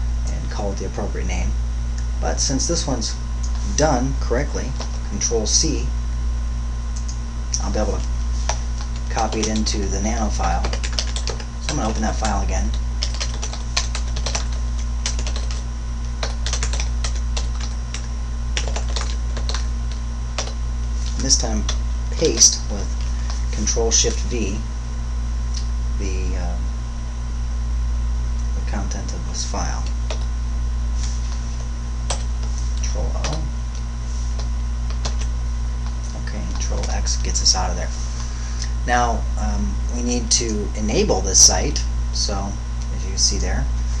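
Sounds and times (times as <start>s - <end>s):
low electrical hum: 0.0s - 44.0s
keyboard key presses: 10.6s - 12.4s, 16.2s - 19.6s.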